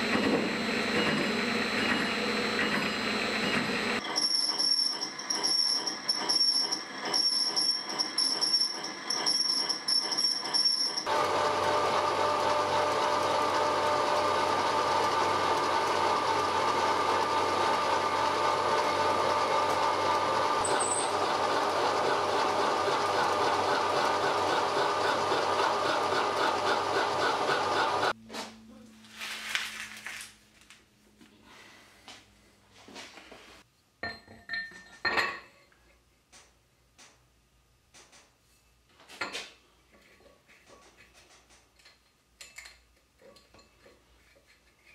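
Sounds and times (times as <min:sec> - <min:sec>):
machine with high steady tones: 0:00.0 - 0:28.2
milling machine drilling metal: 0:00.1 - 0:28.1.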